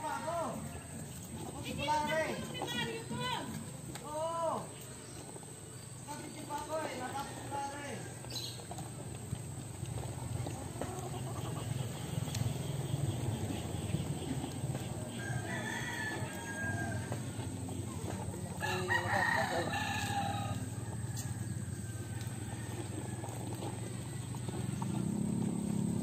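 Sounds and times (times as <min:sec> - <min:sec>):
rooster crowing: 0:15.1 - 0:17.5, 0:18.5 - 0:24.9.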